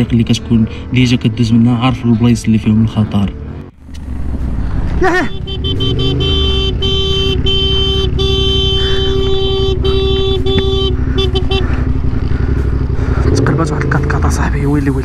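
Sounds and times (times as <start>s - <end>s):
motorcycle engine running: 2.9s - 15.0s
vehicle horn blasts: 5.1s - 12.2s.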